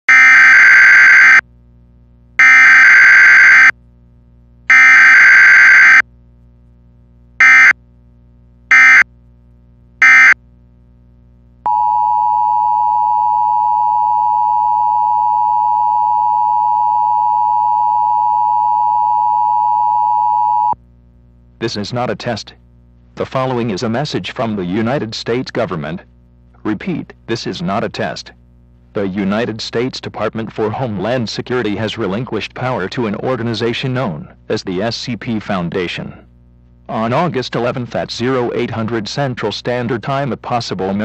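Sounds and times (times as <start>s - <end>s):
digital data bursts: 7.4s - 7.7s, 8.7s - 9.0s
two-tone attention signal: 7.4s - 7.8s, 8.7s - 9.0s, 10.0s - 10.4s.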